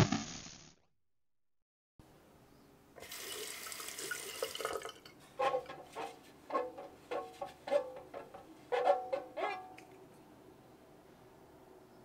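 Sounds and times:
tap water running into sink: 3.0s - 6.0s.

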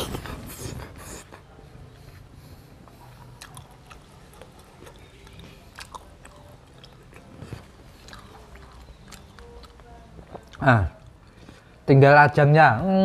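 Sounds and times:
person chewing: 2.8s - 11.8s.

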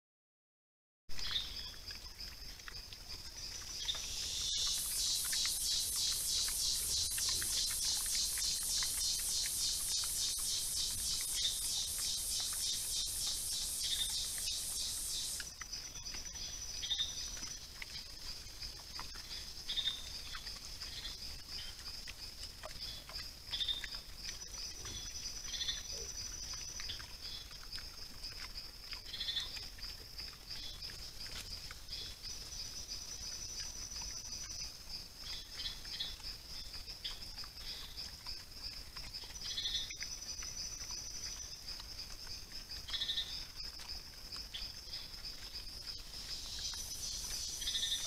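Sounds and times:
high-pitched insect chorus: 1.2s - 48.0s
short chirping calls: 3.8s - 15.5s, 45.9s - 48.0s.

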